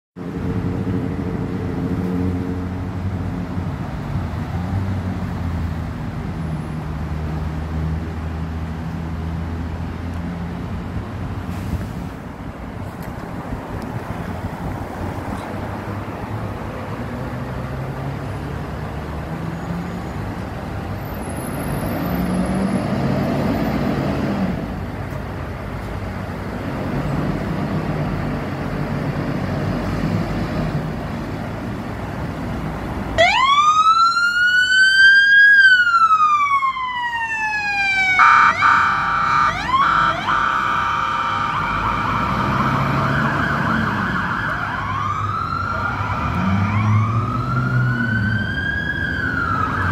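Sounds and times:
road traffic and engine noise: 0.2 - 49.9
bullhorn siren blasts: 33.2 - 49.9
electronic siren wailing: 33.2 - 49.9.

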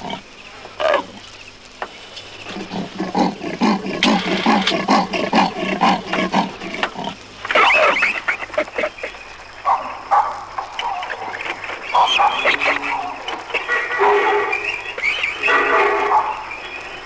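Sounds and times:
animal rhythmic grunting calls: 0.0 - 1.3, 2.4 - 16.6
harsh high animal call: 2.5 - 9.2, 10.8 - 16.5.

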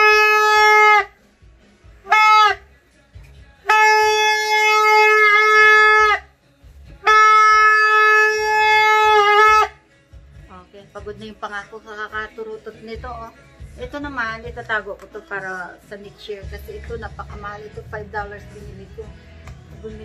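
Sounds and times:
plastic party horn honking: 0.0 - 1.2, 2.0 - 2.7, 3.6 - 6.3, 7.0 - 9.8.

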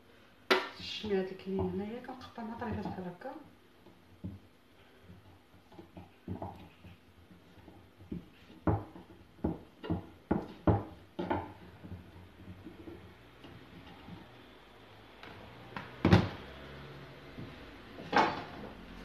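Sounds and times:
knife knocking on wooden board: 8.1 - 11.5.

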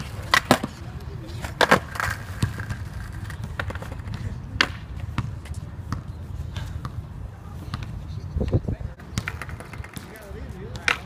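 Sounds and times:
skateboard knocking on concrete: 0.0 - 5.4, 9.0 - 11.0.

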